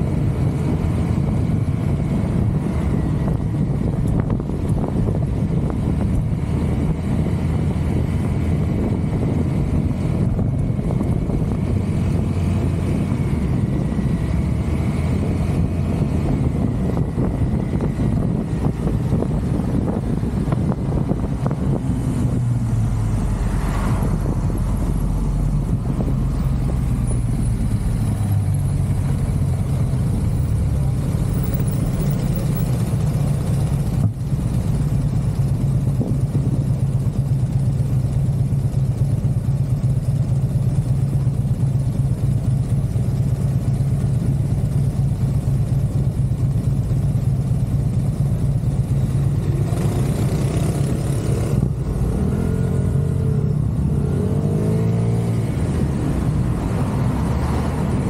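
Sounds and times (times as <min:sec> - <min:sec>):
motor scooter engine idling: 0:26.4 - 0:50.8.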